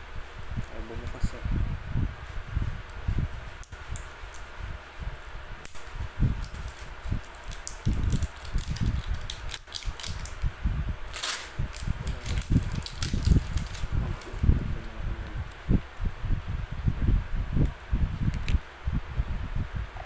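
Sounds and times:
packaging rustling: 0:06.4 - 0:10.4, 0:11.1 - 0:14.4.

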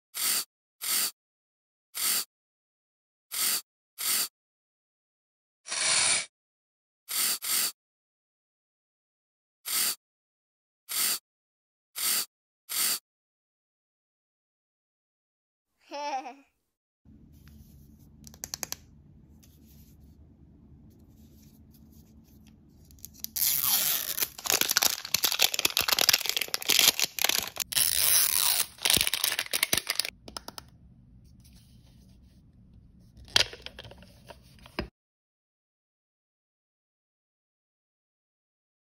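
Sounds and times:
plastic wrap crinkling and tearing: 0:23.0 - 0:30.1.

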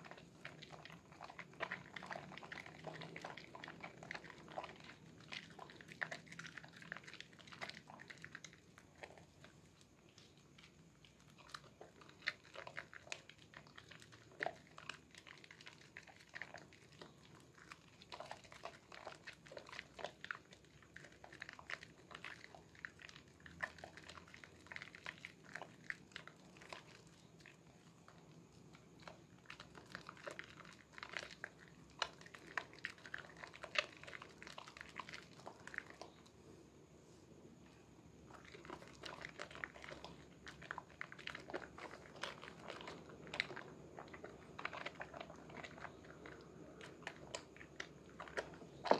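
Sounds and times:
soap lather squelching: 0:00.0 - 0:36.4, 0:37.3 - 0:48.9.

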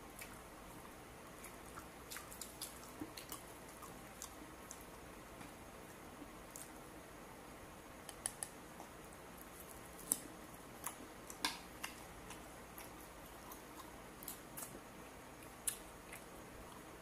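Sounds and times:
chewing with mouth clicks: 0:01.3 - 0:05.0, 0:08.3 - 0:16.9.

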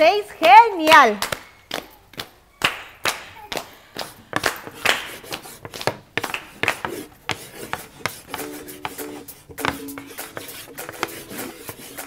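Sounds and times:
audience clapping: 0:01.2 - 0:05.4, 0:06.2 - 0:06.8.

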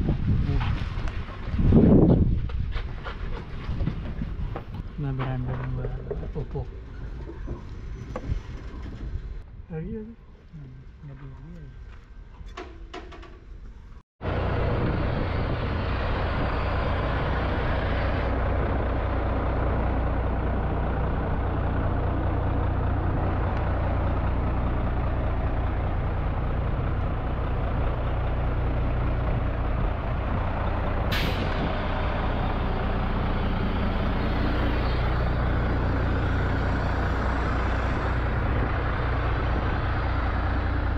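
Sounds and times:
truck diesel engine idling: 0:14.2 - 0:40.9.

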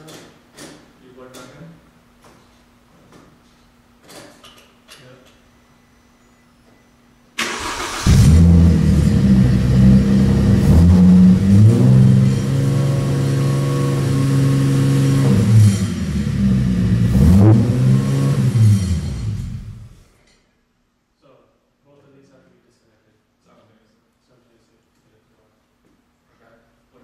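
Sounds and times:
starter motor cranking: 0:07.4 - 0:08.6
car engine idling and revving: 0:07.6 - 0:20.0.

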